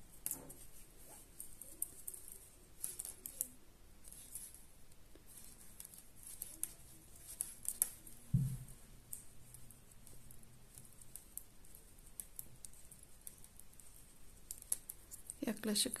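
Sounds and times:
knitting needles clicking: 0:01.4 - 0:16.0
soft low thump: 0:08.3 - 0:08.8.

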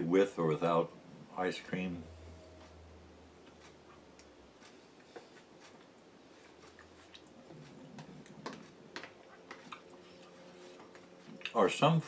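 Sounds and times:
man chewing food: 0:02.6 - 0:11.6.

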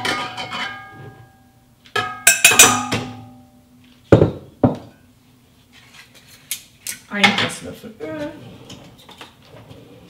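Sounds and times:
glass jug knocking metal bowl: 0:02.0 - 0:03.4
metal bowl ringing: 0:02.0 - 0:03.6.

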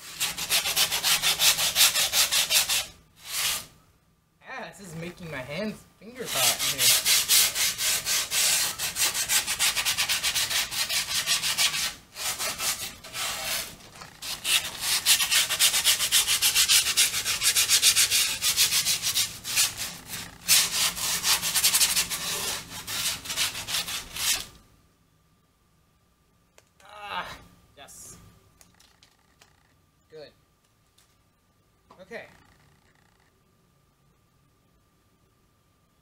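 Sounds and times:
sanding grip tape scraping: 0:00.0 - 0:03.7, 0:06.2 - 0:24.6.

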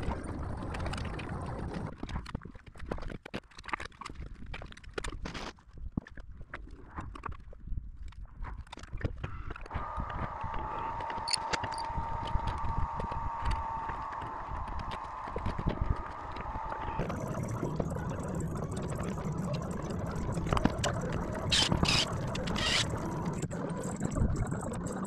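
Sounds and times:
steady mechanical hum: 0:09.3 - 0:25.0.

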